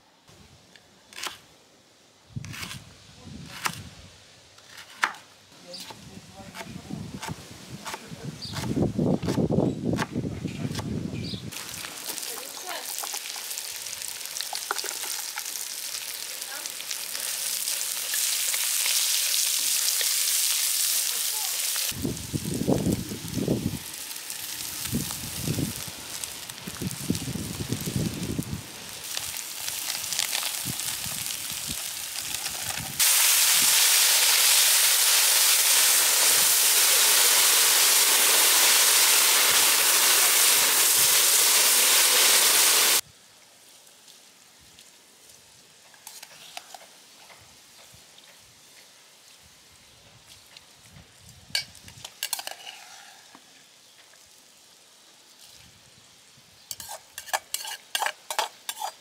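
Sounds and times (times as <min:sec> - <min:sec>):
food sizzling in oil: 0:11.5 - 0:43.0, 0:51.5 - 0:59.0
utensil clinking and scraping pot: 0:51.6 - 0:53.1, 0:56.7 - 0:59.0.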